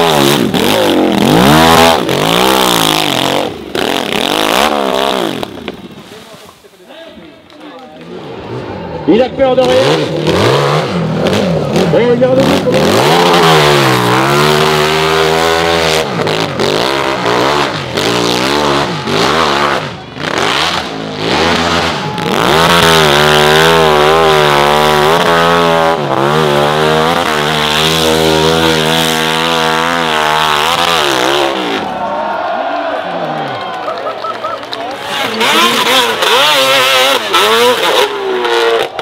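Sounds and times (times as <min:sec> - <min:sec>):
dirt bike engine revving: 0:00.0 - 0:06.0, 0:08.1 - 0:33.0, 0:34.8 - 0:39.0.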